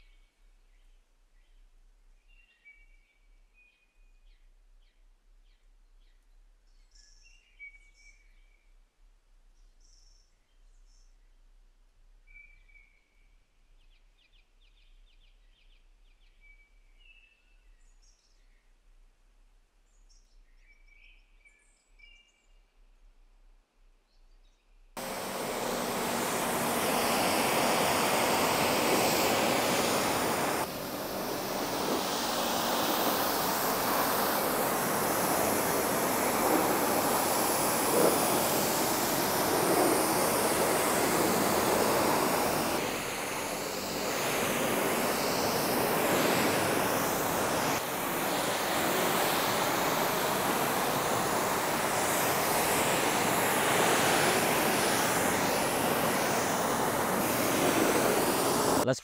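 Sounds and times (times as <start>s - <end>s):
pressure washer spraying car: 25.0s - 58.9s.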